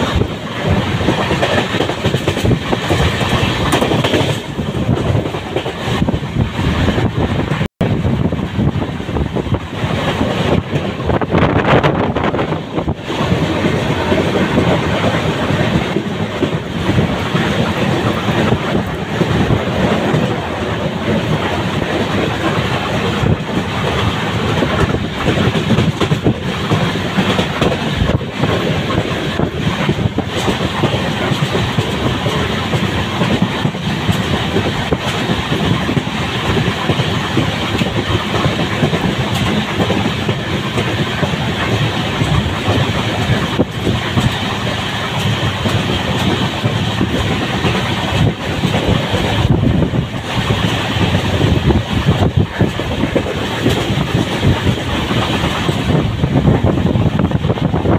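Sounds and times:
train wheels rumbling and rattling: 0.0s - 57.9s.

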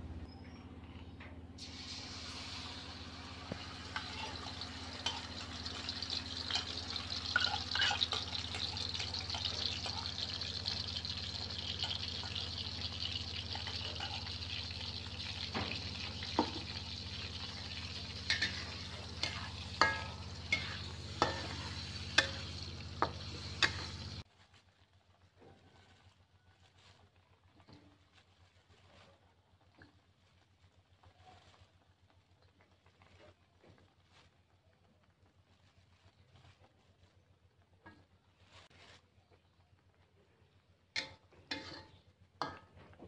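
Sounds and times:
sharp clicks in frying: 1.6s - 24.3s, 40.9s - 43.0s
chili paste sizzling in oil: 1.6s - 43.0s.

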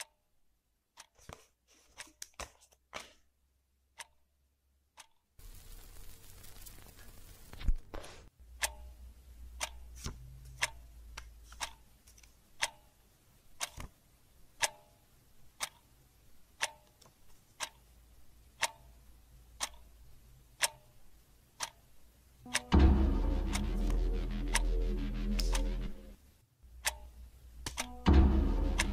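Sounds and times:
clock ticking: 0.0s - 0.2s, 3.9s - 4.3s, 4.9s - 5.3s, 8.4s - 28.9s
low thump: 28.0s - 28.9s.

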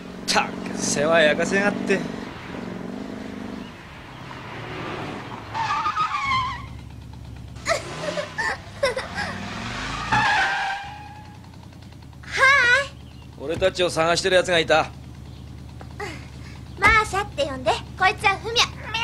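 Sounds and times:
car engine running: 0.0s - 19.0s
short high squeals: 5.5s - 6.8s.

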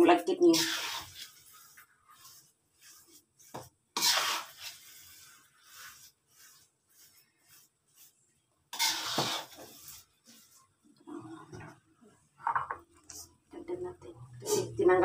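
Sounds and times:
metal spatula scraping in a wok: 0.0s - 10.6s.

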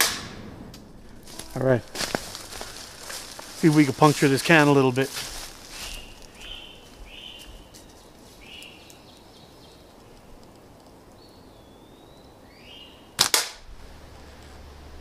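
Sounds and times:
slingshot crack: 0.0s - 0.9s, 13.2s - 13.7s
birds chirping and whistling: 5.7s - 9.8s, 11.2s - 13.1s.

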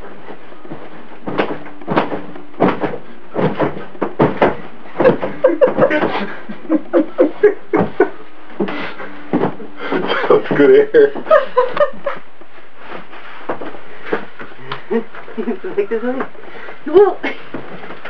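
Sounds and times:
soft thumps on a mattress: 0.2s - 6.6s, 7.8s - 11.3s.

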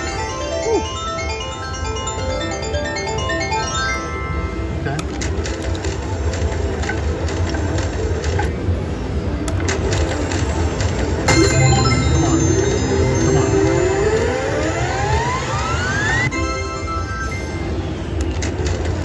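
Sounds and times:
slot machine electronic tones: 0.0s - 7.4s, 10.0s - 18.1s
slot machine clicks: 0.0s - 8.5s, 9.5s - 17.6s
casino din: 11.3s - 14.7s
rising electronic whine: 11.3s - 16.3s.

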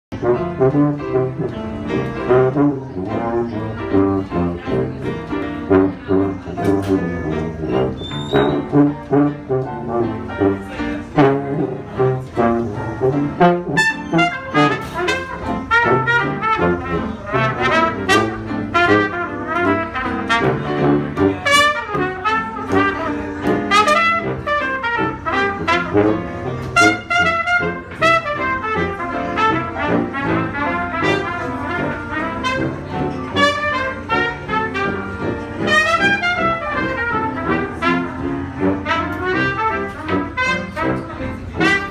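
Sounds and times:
trumpet melody: 0.1s - 41.9s
tuba bass line: 0.1s - 41.9s
upright piano: 0.1s - 41.9s.

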